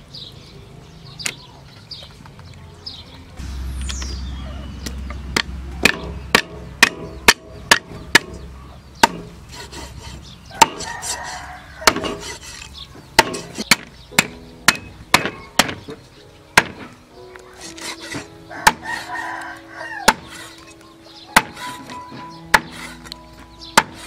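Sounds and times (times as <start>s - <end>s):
cleaver chopping on wooden block: 5.4s - 9.3s, 10.6s - 12.4s, 13.2s - 16.0s, 16.6s - 17.0s, 20.0s - 20.6s, 21.4s - 23.2s, 23.8s - 24.0s.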